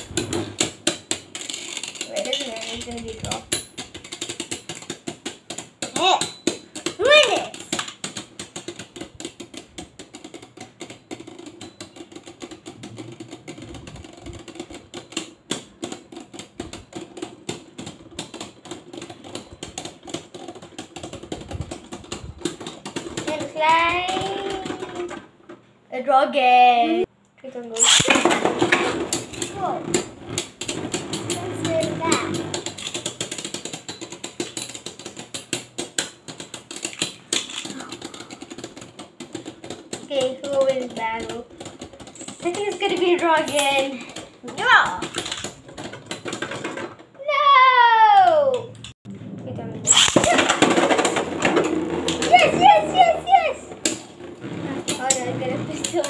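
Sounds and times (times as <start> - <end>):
spinning tops clashing and clattering: 0.0 - 25.2, 27.7 - 47.0, 49.9 - 56.0
spinning tops clattering: 27.8 - 46.8
spinning hum: 49.1 - 56.0.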